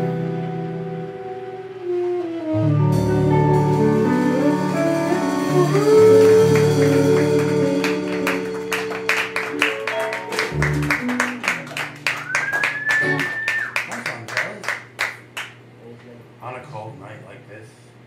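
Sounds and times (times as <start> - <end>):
note sliding up in pitch: 0.0 - 11.2
live band playing slow song: 0.0 - 13.8.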